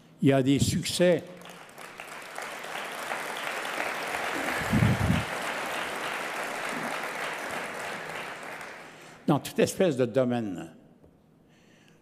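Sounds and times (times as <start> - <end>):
audience applauding: 1.4 - 9.2.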